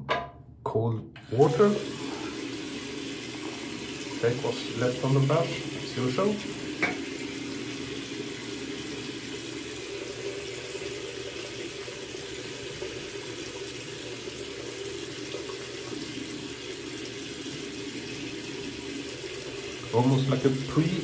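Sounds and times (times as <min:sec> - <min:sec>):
tap running into sink: 0:02.2 - 0:09.2.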